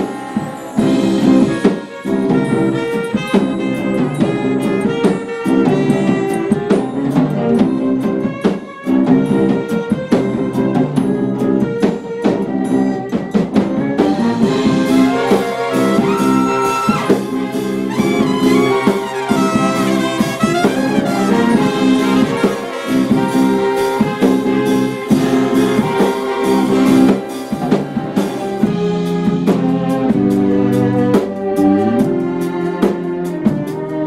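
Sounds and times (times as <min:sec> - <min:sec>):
strings playing: 0:00.0 - 0:08.4, 0:14.1 - 0:34.0
sharp percussion strikes: 0:00.0 - 0:33.8
trumpet melody: 0:00.0 - 0:34.0.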